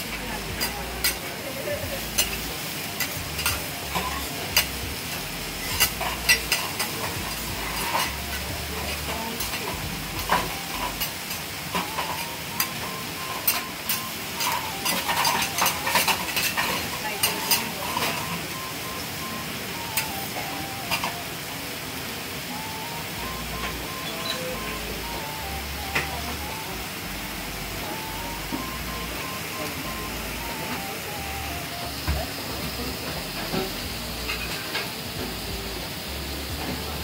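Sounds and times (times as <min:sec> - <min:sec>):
food sizzling on a griddle: 0:00.0 - 0:37.0
metal spatulas scraping a griddle: 0:02.1 - 0:12.2, 0:13.4 - 0:18.3.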